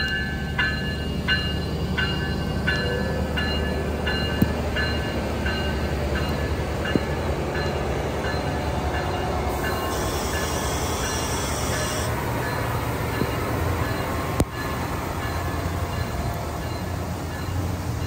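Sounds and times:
diesel locomotive engine: 0.0 - 18.0
heavy rain: 9.5 - 12.4.

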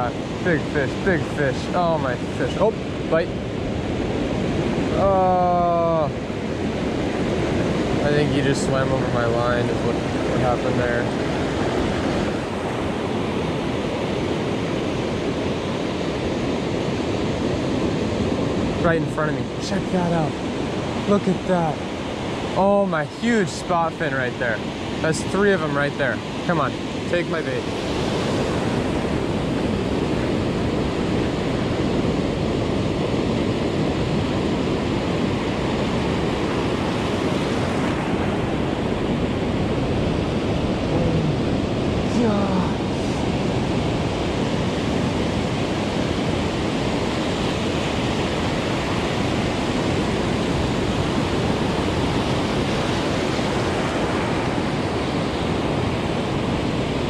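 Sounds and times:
ocean surf breaking: 0.0 - 57.0
small waves washing over sand: 0.0 - 57.0
wind on microphone: 26.8 - 57.0.

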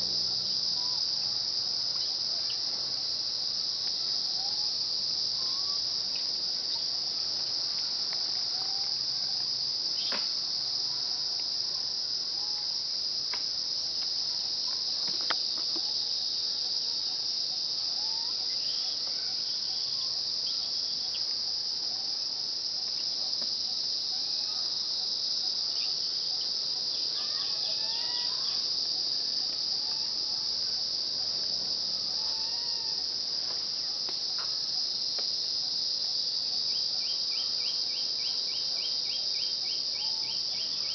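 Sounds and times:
high-pitched insect drone: 0.0 - 40.9.

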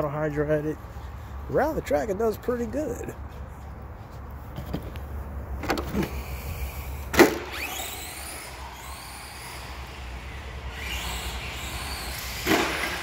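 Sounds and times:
electric motor whining: 5.9 - 13.0.

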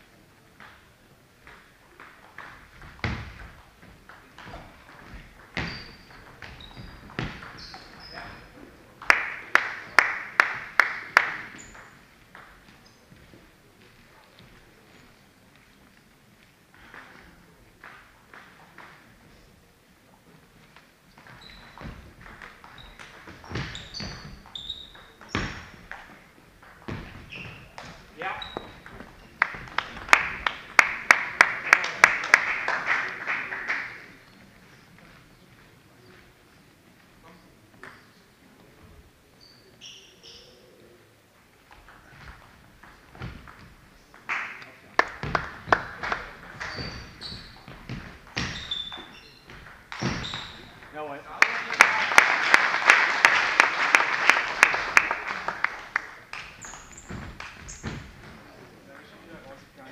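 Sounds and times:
sports shoes squeaking: 2.2 - 8.8, 11.4 - 13.4, 21.0 - 30.1, 34.1 - 40.8, 45.2 - 51.2, 56.6 - 58.8.

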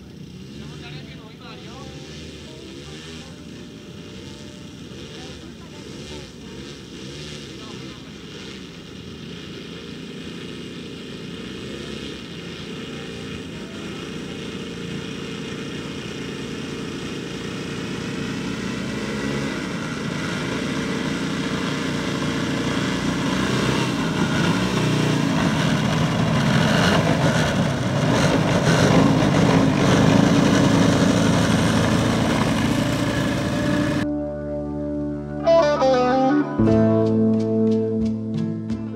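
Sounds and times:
model plane propeller engines: 0.0 - 34.1
guitar music: 33.3 - 38.9.

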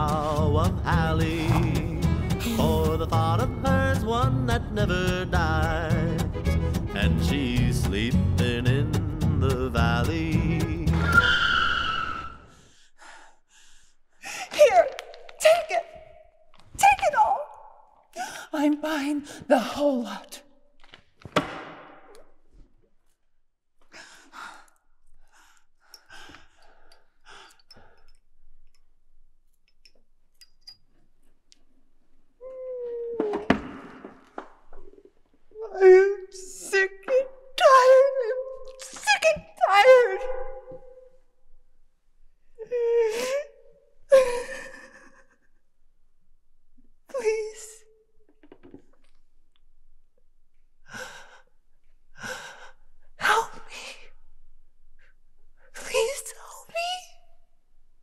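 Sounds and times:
loud wailing cry: 11.0 - 12.4.

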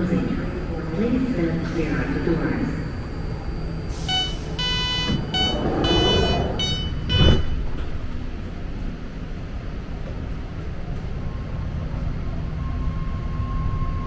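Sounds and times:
train rumble: 0.0 - 14.0
electronic beeps: 4.0 - 7.6
loud thump: 7.0 - 7.7.

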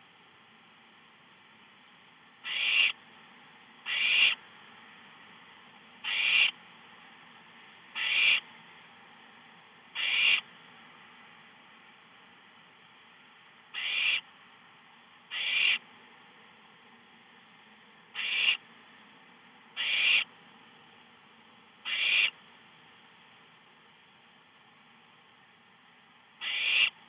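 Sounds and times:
owlet hissing calls: 2.4 - 3.0, 3.9 - 4.4, 6.0 - 6.6, 8.0 - 8.4, 10.0 - 10.4, 13.8 - 14.2, 15.3 - 15.8, 18.2 - 18.6, 19.8 - 20.3, 21.9 - 22.4, 26.4 - 26.9.

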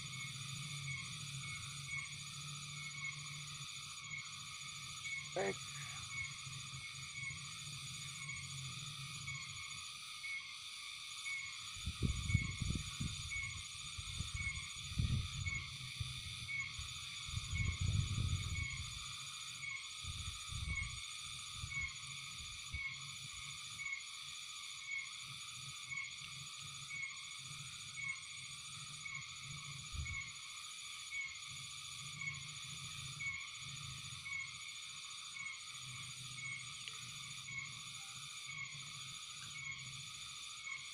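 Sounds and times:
frogs and insects chorus: 0.0 - 40.9.

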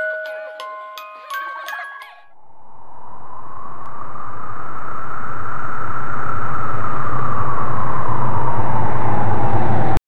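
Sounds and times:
loud rushing wind with rumble: 2.3 - 10.0.

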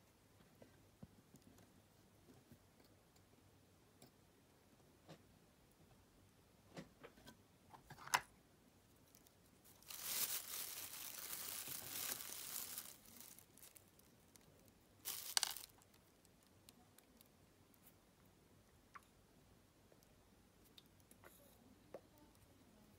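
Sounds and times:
plastic packet crinkling: 9.1 - 17.2.

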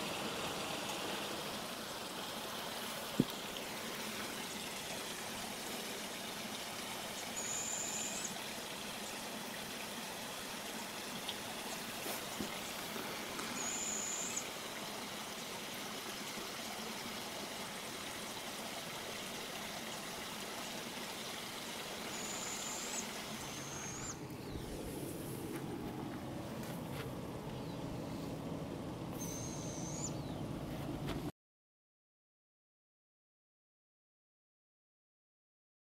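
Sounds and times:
stream rushing: 0.0 - 29.8
thin high call: 7.3 - 8.4, 13.4 - 14.5, 22.0 - 24.2, 29.1 - 30.2.

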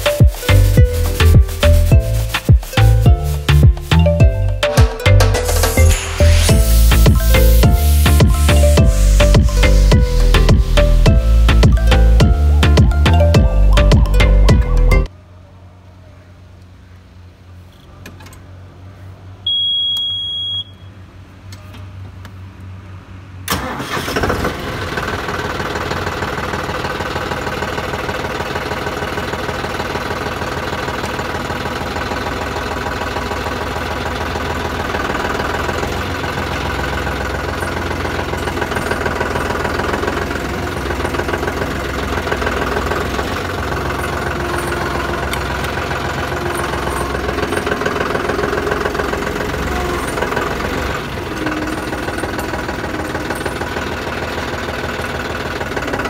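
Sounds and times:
tractor diesel engine idling: 0.0 - 15.1, 23.5 - 56.0
electronic beep: 19.5 - 20.8.

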